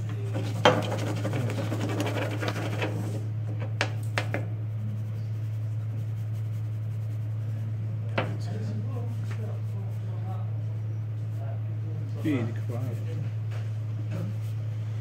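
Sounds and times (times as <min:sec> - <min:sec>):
steady low hum: 0:00.0 - 0:15.0
sand scratching across metal tray: 0:00.2 - 0:03.2.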